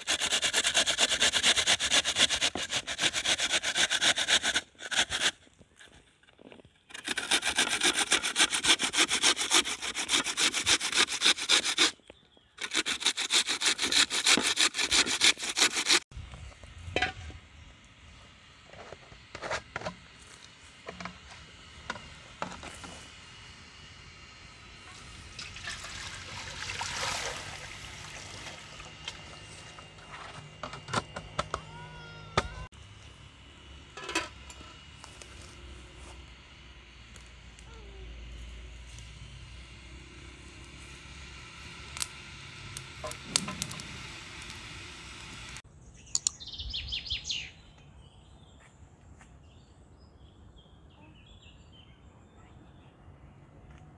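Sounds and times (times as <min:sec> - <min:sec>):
food grated on metal grater: 0:00.0 - 0:05.4, 0:06.9 - 0:12.0, 0:12.6 - 0:16.0.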